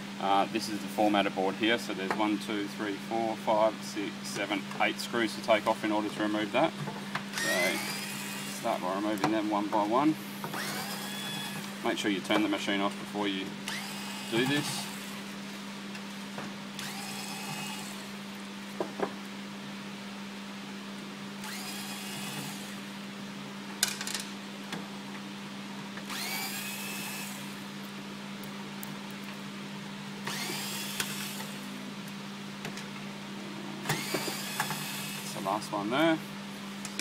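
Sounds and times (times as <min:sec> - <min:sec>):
cordless screwdriver motor whine: 0:07.4 - 0:08.7, 0:10.5 - 0:11.8, 0:13.7 - 0:15.2, 0:16.8 - 0:18.1, 0:21.4 - 0:22.8, 0:26.1 - 0:27.6, 0:30.3 - 0:31.7, 0:33.9 - 0:35.4.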